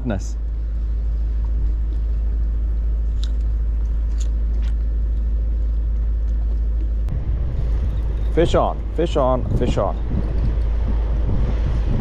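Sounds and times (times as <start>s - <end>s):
wind buffeting microphone: 0.2s - 12.0s.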